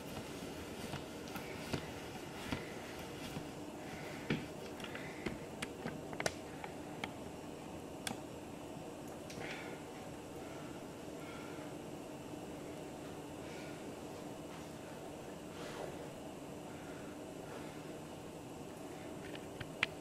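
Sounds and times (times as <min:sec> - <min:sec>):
small clicks and pops: 0:04.3 - 0:07.2, 0:19.2 - 0:20.0.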